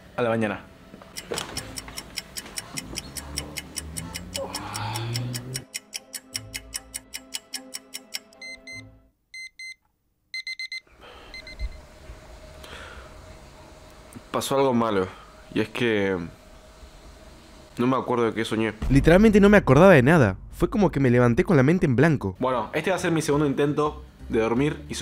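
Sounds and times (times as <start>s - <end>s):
background music: 0.0s - 9.2s, 18.8s - 25.0s
clock ticking rapidly: 1.1s - 8.7s
alarm clock beeping: 1.2s - 9.8s, 10.4s - 11.8s.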